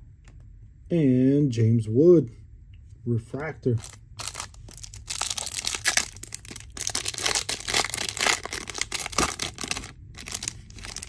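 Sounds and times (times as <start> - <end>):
foil wrapper tearing and crinkling: 3.8 - 11.0.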